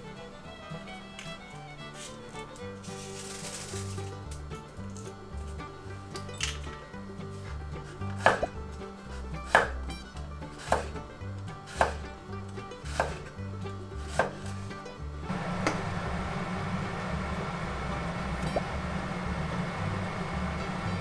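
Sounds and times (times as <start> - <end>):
knife cutting on wooden board: 7.9 - 8.6, 9.4 - 9.8, 10.5 - 11.0, 11.7 - 12.0, 12.9 - 13.3, 14.0 - 14.6.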